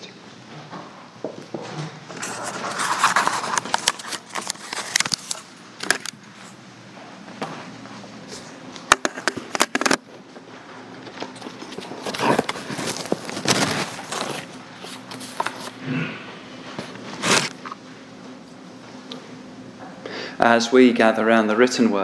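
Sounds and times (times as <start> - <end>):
rustling of clothes and paper: 1.6 - 6.6, 9.4 - 15.8, 16.6 - 18.9.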